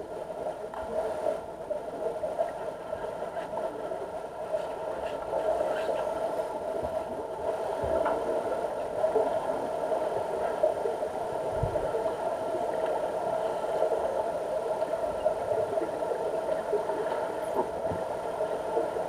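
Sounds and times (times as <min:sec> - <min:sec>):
pool pumps humming underwater: 0:00.0 - 0:19.0.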